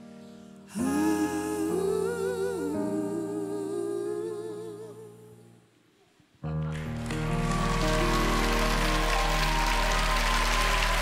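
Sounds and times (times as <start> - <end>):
two men singing in harmony: 0.7 - 5.4.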